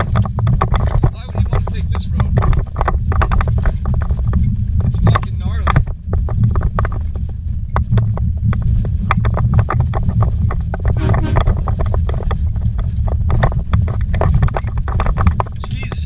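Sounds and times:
sharp knocks and rattles: 0:00.0 - 0:15.6
engine and tyres rumbling: 0:00.0 - 0:16.0.

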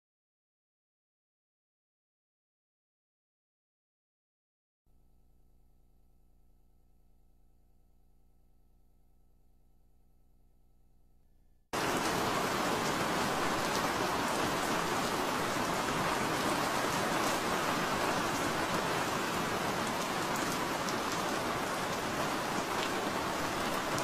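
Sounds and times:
steady rain: 0:11.8 - 0:24.0
raindrop ticks: 0:19.8 - 0:24.0.

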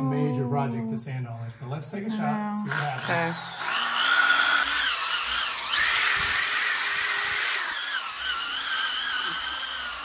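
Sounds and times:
orbital sander whine: 0:02.7 - 0:10.0.

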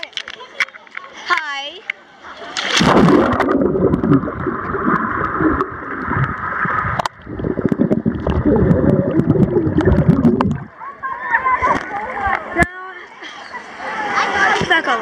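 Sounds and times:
small underwater clicks: 0:00.0 - 0:10.7
splash into pool water: 0:02.3 - 0:07.1
muffled underwater rushing: 0:02.3 - 0:10.9
bubbles from breathing out underwater: 0:02.8 - 0:10.7.

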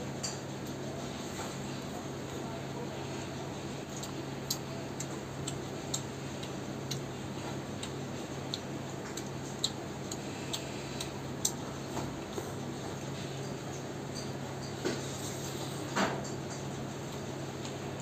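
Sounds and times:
person chewing with wet smacks: 0:00.6 - 0:14.4.

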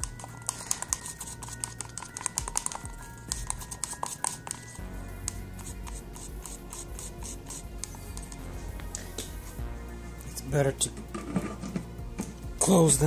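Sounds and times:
tool scraping inside paper cup: 0:00.0 - 0:09.6, 0:10.9 - 0:12.4.

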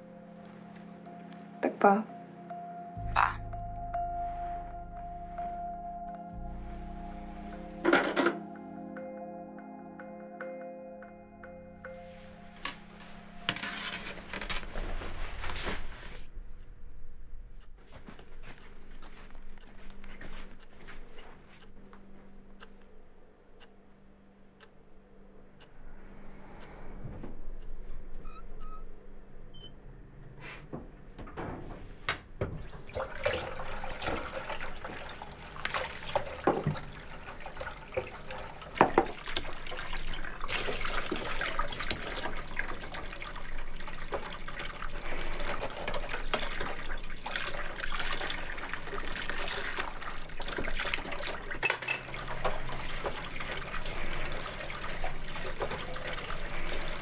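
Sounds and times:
tap running into sink: 0:32.4 - 0:57.0
dishes knocking and clinking: 0:51.6 - 0:52.1.

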